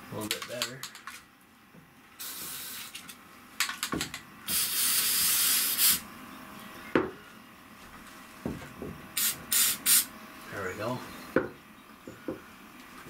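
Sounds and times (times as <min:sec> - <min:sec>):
aerosol can hissing: 0:02.2 - 0:03.0, 0:04.5 - 0:06.0, 0:09.2 - 0:10.1.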